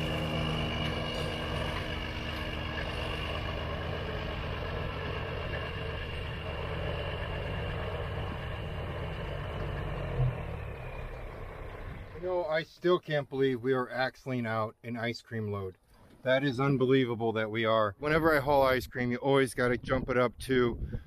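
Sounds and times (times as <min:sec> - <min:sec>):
truck diesel engine running: 0:00.0 - 0:12.5.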